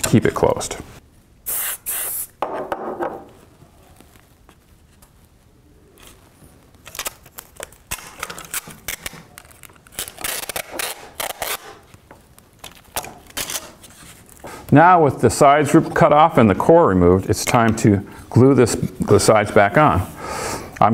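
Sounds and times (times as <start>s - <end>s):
aerosol spray hiss: 1.5s - 2.3s
packing tape ripping: 6.8s - 14.4s.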